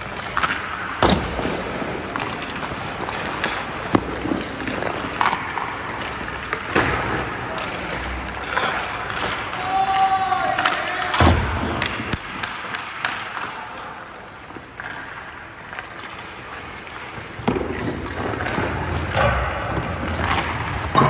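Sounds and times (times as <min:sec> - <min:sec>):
skates scraping ice: 0:00.0 - 0:11.2, 0:11.8 - 0:21.0
steady background noise: 0:00.0 - 0:21.0
puck and stick knocks on ice: 0:00.2 - 0:07.2, 0:10.5 - 0:13.5.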